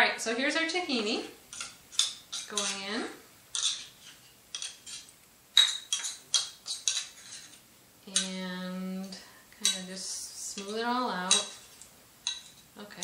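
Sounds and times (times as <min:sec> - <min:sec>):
metal utensil scraping metal cup: 0:01.5 - 0:02.9, 0:03.6 - 0:05.1, 0:05.9 - 0:08.4.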